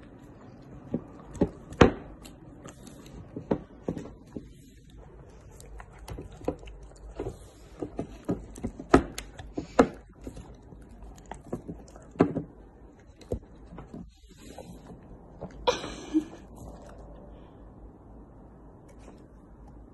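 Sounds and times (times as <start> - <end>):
dog chewing meat: 0.0 - 15.6.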